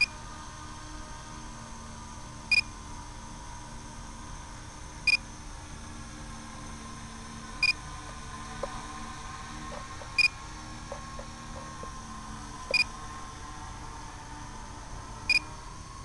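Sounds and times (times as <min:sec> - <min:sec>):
faint hum: 0:00.0 - 0:16.0.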